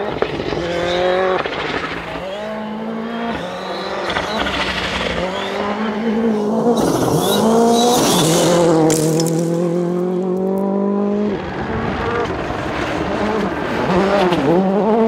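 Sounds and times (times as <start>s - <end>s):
gravel and tyre hiss: 0.0s - 10.4s
rally car engines revving: 0.0s - 15.0s.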